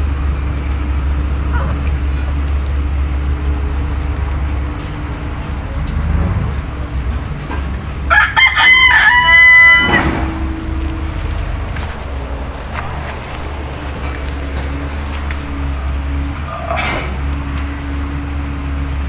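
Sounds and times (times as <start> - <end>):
steady low hum: 0.0 - 19.0
rooster crowing: 7.9 - 18.3.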